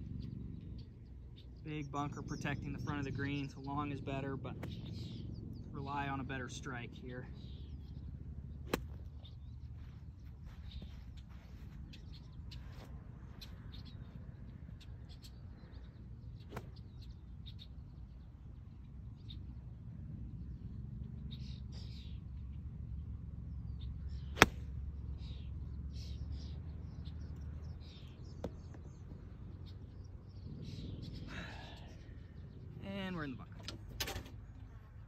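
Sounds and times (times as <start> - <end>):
birds chirping: 0.0 - 35.0
low outdoor rumble: 0.0 - 35.0
golf club striking ball: 8.7 - 9.4, 24.3 - 24.8.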